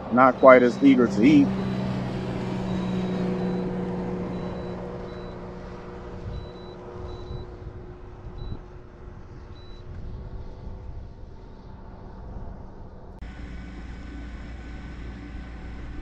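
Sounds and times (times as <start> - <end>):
faint high beeps: 0.2 - 1.9, 2.7 - 5.4
electric motor humming: 13.2 - 16.0.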